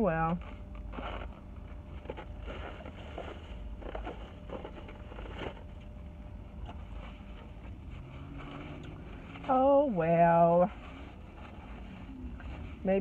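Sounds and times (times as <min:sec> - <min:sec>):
low background rumble: 0:00.0 - 0:13.0
paper bag rustling: 0:00.4 - 0:05.8.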